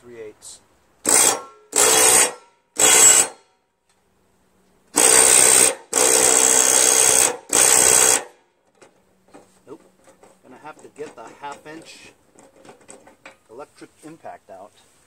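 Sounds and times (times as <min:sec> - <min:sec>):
cordless drill driving a bolt: 0:01.0 - 0:03.4, 0:04.9 - 0:08.4.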